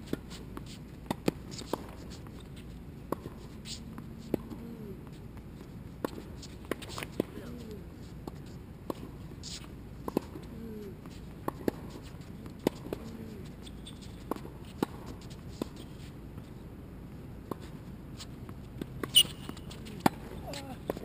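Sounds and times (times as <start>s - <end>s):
tennis balls bouncing on hard court: 0.1s - 2.4s, 3.1s - 7.6s, 8.2s - 16.0s, 17.4s - 21.0s
tennis balls popping off racket: 3.1s - 16.1s.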